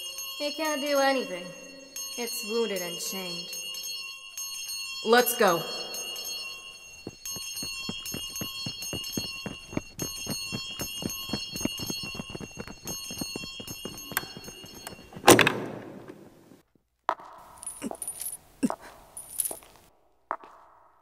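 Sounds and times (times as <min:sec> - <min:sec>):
bell ringing: 0:00.0 - 0:15.8.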